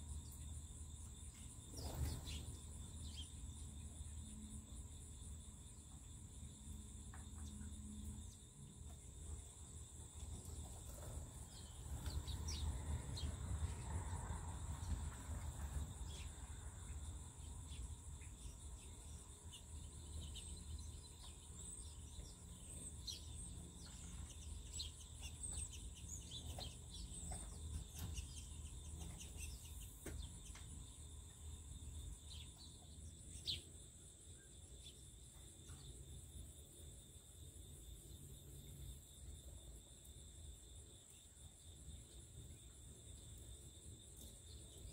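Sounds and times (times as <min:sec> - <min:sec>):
insects trilling: 0:00.0 - 0:44.9.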